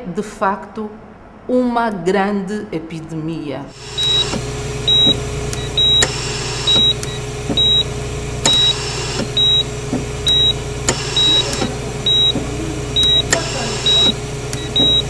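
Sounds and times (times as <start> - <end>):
steady electrical hum: 3.6 - 15.0
heart monitor beeping: 3.8 - 15.0.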